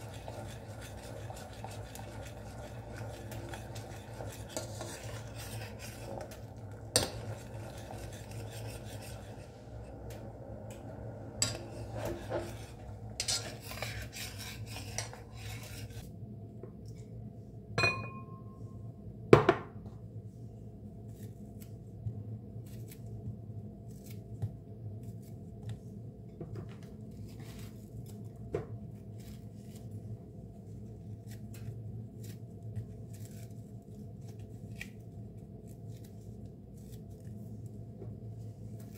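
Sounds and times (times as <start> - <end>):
spoon stirring in a metal pot: 0.0 - 16.0
glass bowl ringing: 17.8 - 18.6
bread tearing crackles: 30.8 - 37.7.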